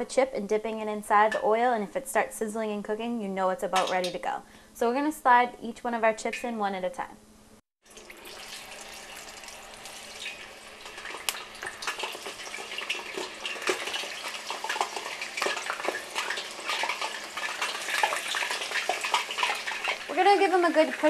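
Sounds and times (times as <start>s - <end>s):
potato slices deep-frying in oil: 7.8s - 21.0s.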